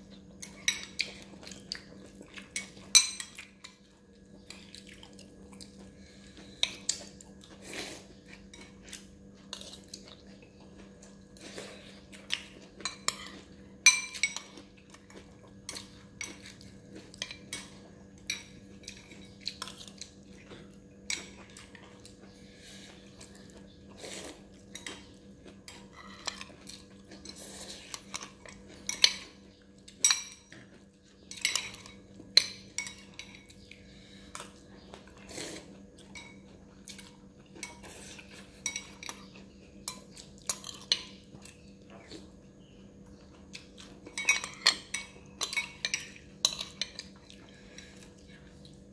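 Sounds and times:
faint steady hum: 0.0 - 48.9
spoon clinking and scraping bowl: 2.6 - 3.7, 12.7 - 19.9, 25.7 - 33.6, 37.6 - 41.2, 44.1 - 48.0.

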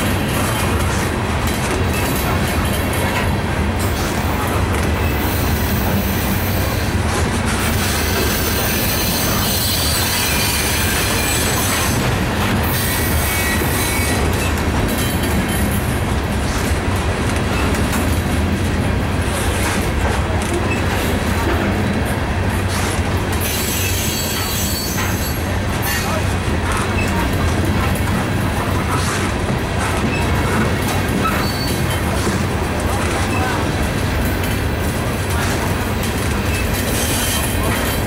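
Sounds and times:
train wheels on rails: 0.0 - 38.0
faint wheel squeal: 23.5 - 26.1, 31.2 - 32.0.

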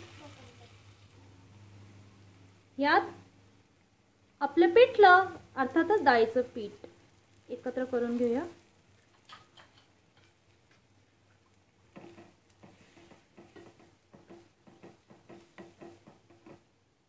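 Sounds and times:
spoon scraping and tapping pan: 9.2 - 10.8, 11.9 - 16.7.

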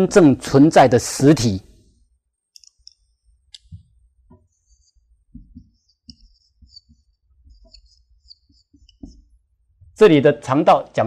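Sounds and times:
marker squeaking on whiteboard: 2.6 - 9.4
marker taps and clicks: 5.3 - 9.3.

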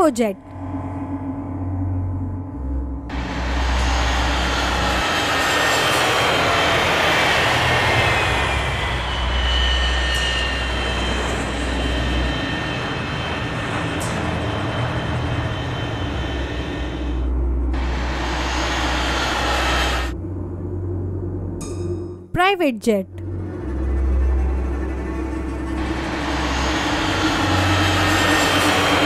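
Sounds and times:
jet engine whining roar: 3.1 - 20.2, 25.6 - 29.0.

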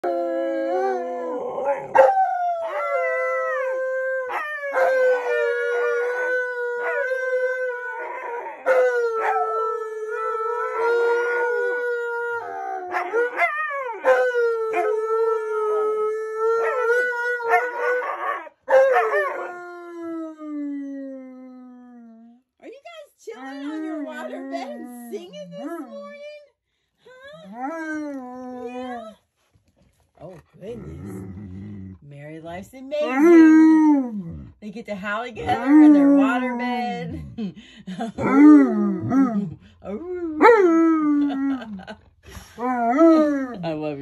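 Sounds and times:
dogs howling: 0.0 - 21.2.

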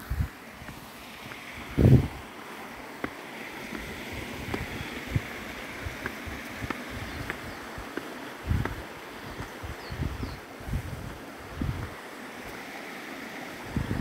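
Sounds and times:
steady rushing noise: 0.0 - 14.0
footsteps on stone: 0.6 - 2.2, 2.9 - 9.6.

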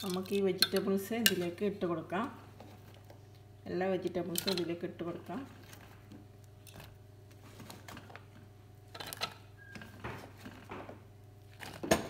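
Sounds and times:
vegetables dropped into metal pot: 4.3 - 4.8.

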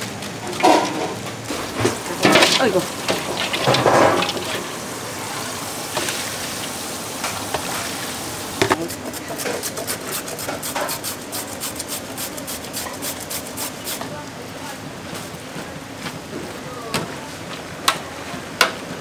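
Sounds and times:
food sizzling on a grill: 0.0 - 14.4.

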